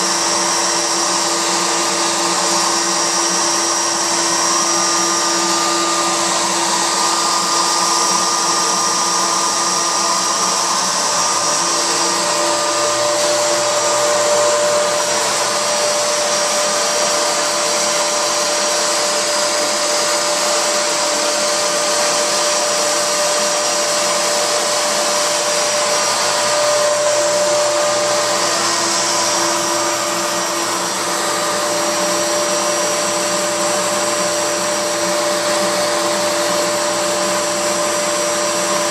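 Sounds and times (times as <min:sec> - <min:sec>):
whining tones: 0:00.0 - 0:37.2
router carving wood: 0:00.0 - 0:38.9
dust collector rushing: 0:00.2 - 0:17.9, 0:25.0 - 0:32.9.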